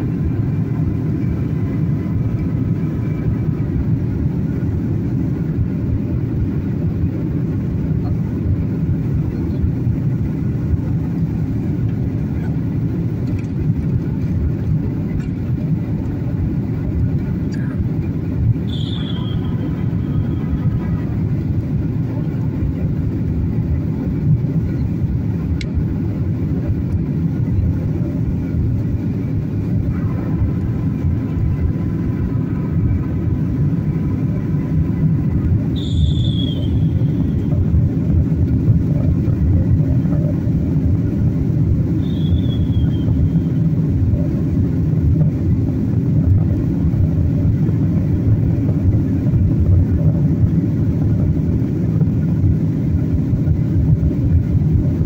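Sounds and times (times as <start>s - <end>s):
jet engine cabin rumble: 0.0s - 55.0s.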